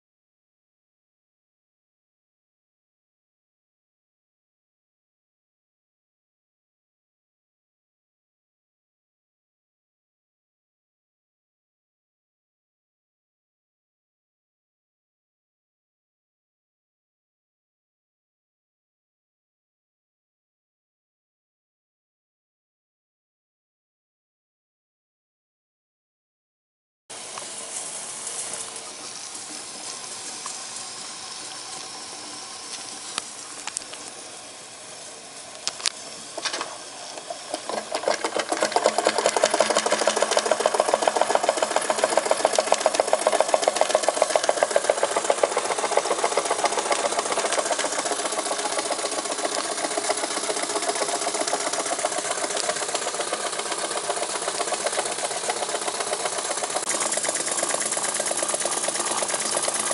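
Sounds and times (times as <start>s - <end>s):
steam hissing: 27.1s - 59.9s
toy steam engine chuffing: 27.1s - 59.9s
sharp ticks: 37.5s - 59.9s.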